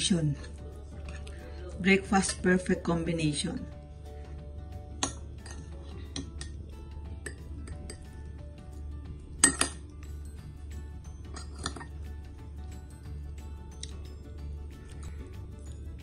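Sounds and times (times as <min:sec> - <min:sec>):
soft background music: 0:00.0 - 0:16.0
metal spoon clinking on dishes: 0:05.0 - 0:06.6, 0:07.2 - 0:08.2, 0:09.4 - 0:09.9, 0:11.2 - 0:12.0.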